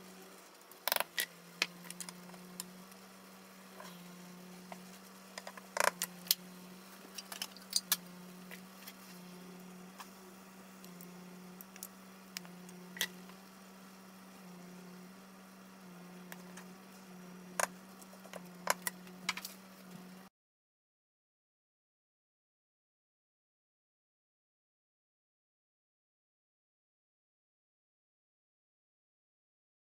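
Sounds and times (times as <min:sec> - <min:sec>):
steady low hum: 0:00.0 - 0:20.3.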